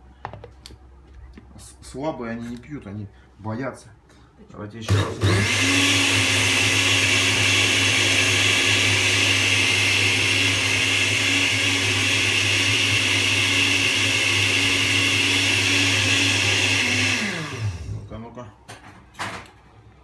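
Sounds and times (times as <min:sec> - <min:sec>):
blender motor whirring: 0:04.9 - 0:18.0.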